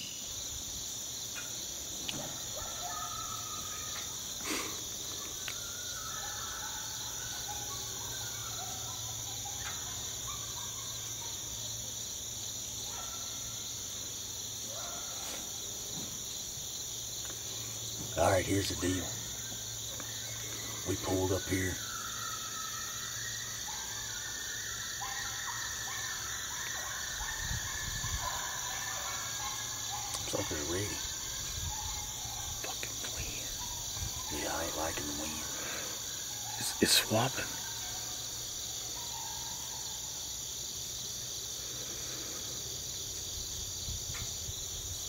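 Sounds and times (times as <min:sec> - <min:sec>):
crickets and insects chorus: 0:00.0 - 0:45.0
wind rumble on microphone: 0:27.2 - 0:28.2.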